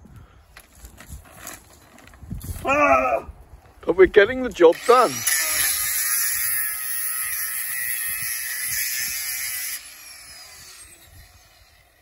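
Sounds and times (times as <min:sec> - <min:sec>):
angle grinder cutting metal: 0:04.7 - 0:12.0.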